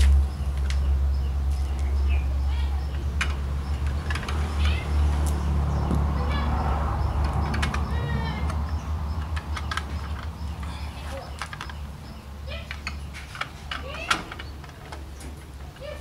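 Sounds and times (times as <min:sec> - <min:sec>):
plastic parts clicking and tapping: 0:07.2 - 0:11.8.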